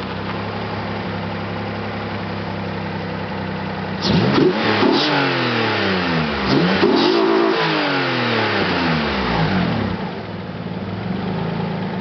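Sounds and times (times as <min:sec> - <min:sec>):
car engine idling: 0:00.0 - 0:04.4, 0:08.5 - 0:12.0
car engine revving: 0:04.0 - 0:10.2.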